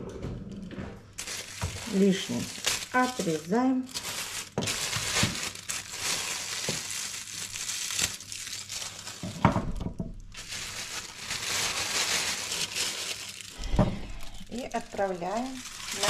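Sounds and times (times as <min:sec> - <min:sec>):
plastic bag crinkling: 0:01.2 - 0:16.0
heavy thump: 0:13.6 - 0:14.1.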